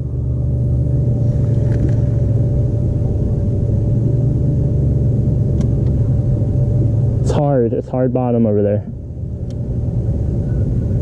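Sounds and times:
boat motor droning: 0.0 - 11.0.

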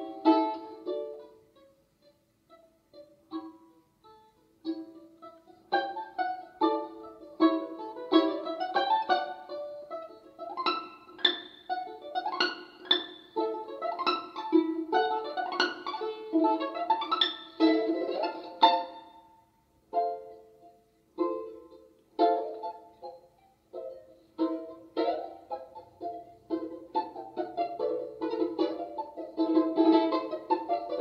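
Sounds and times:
balalaika music: 0.0 - 31.0.

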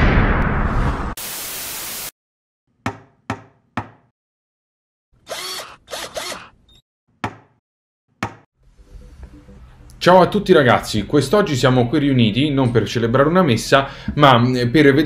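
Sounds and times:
static hiss: 1.2 - 2.1.

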